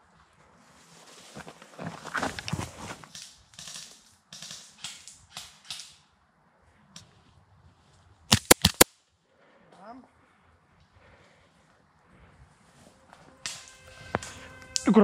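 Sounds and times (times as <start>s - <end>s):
footsteps rustling through leaves: 0.6s - 3.1s
airsoft pistol shots: 8.3s - 8.9s.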